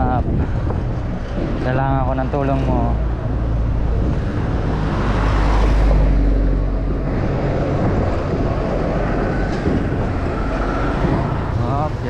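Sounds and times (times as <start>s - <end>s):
road traffic noise: 0.0s - 12.0s
wind rumbling on microphone: 0.0s - 12.0s.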